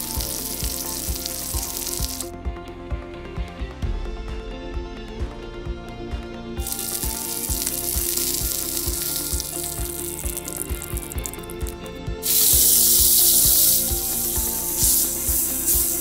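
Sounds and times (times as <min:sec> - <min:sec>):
hot oil sizzling: 0:00.0 - 0:02.3, 0:06.6 - 0:16.0
music with steady beat: 0:00.0 - 0:16.0.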